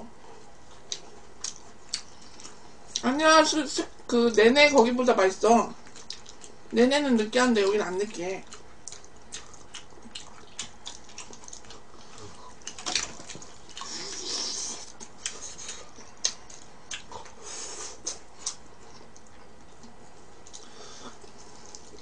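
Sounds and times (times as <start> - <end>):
person chewing: 0.7 - 3.0, 5.8 - 6.7, 8.4 - 22.0.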